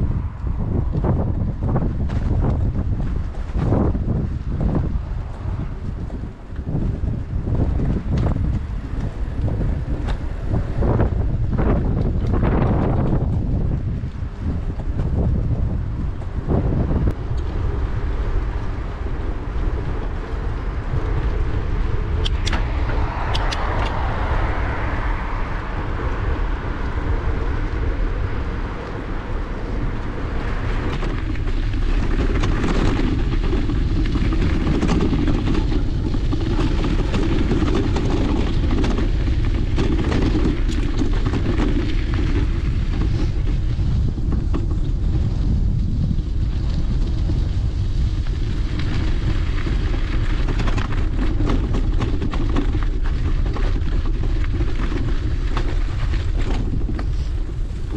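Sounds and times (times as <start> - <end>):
road noise: 0.0 - 57.9
wind rumble on microphone: 0.0 - 57.9
sharp clicks: 23.3 - 24.1.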